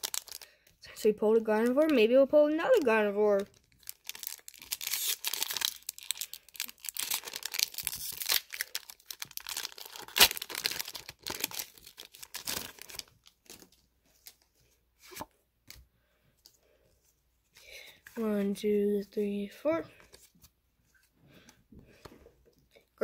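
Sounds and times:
foil wrapper tearing and rustling: 0.0s - 0.5s, 2.7s - 13.7s.

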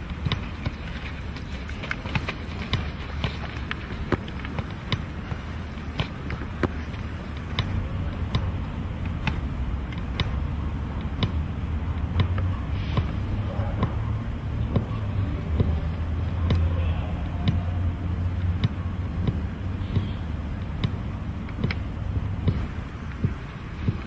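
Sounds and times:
foot thudding on football: 0.0s - 10.4s, 22.4s - 24.0s
steady low rumble: 0.0s - 24.0s.

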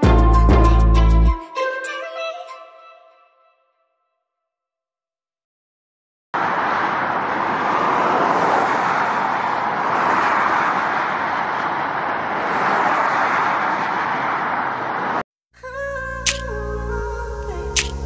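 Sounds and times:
road traffic noise: 6.4s - 15.3s, 16.0s - 18.0s.

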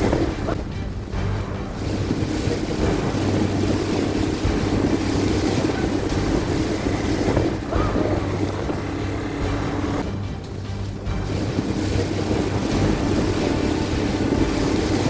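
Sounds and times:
outboard motor humming: 0.0s - 15.0s
water splashing: 0.0s - 15.0s
wind buffeting microphone: 0.0s - 15.0s.

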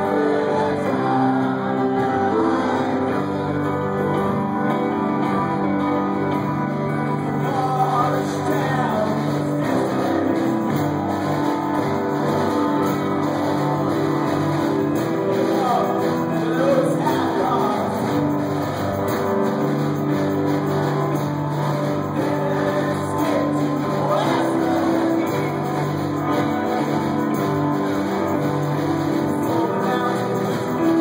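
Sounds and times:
voices singing together: 0.0s - 4.4s, 7.3s - 21.2s, 21.8s - 27.3s
acoustic guitar: 0.0s - 31.0s
keyboard chords: 0.0s - 31.0s.

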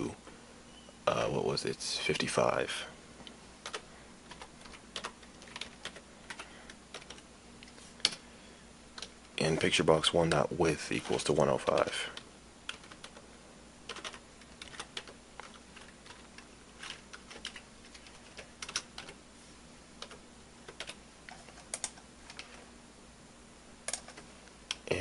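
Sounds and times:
faint steady hum: 0.0s - 25.0s
keyboard typing: 3.6s - 7.3s, 10.2s - 13.3s, 13.9s - 19.2s, 20.0s - 22.6s, 23.8s - 24.8s.

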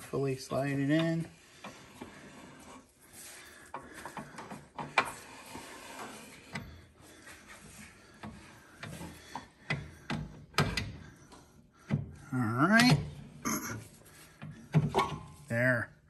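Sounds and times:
metal rubbing and scraping: 0.0s - 9.0s.

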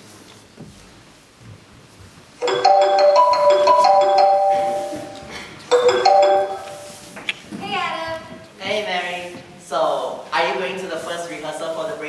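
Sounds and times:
marimba phone ringtone: 2.4s - 7.1s.

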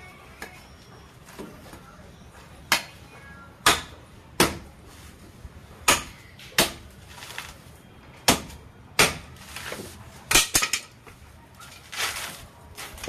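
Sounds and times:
machete chopping coconut husk: 3.6s - 4.7s, 5.8s - 7.4s, 8.2s - 10.9s.

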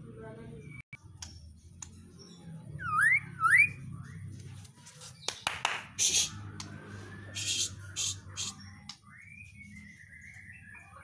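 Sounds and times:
bird whistling and rasping song: 2.2s - 4.4s, 5.2s - 11.0s.

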